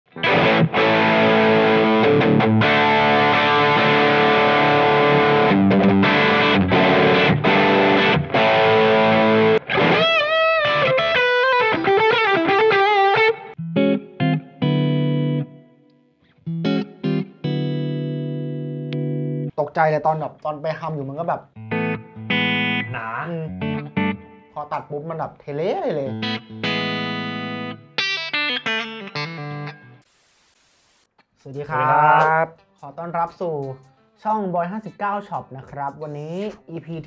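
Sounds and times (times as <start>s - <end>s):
distorted electric guitar: 0.1s - 15.6s, 21.6s - 24.4s.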